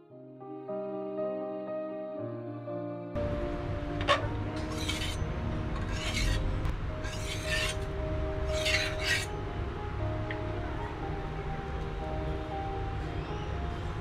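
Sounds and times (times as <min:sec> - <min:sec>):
spatula scraping griddle: 0:04.0 - 0:07.9, 0:08.5 - 0:09.3.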